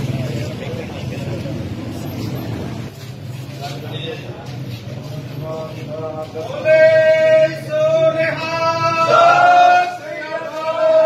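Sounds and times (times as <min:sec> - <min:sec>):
man singing long notes: 0:06.0 - 0:11.0.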